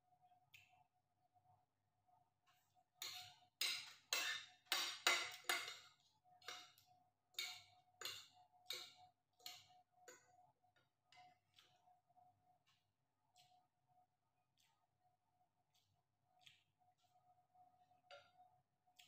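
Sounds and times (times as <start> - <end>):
faint steady hum: 0.0 - 19.0
cutlery scraping ceramic plate: 3.0 - 6.7.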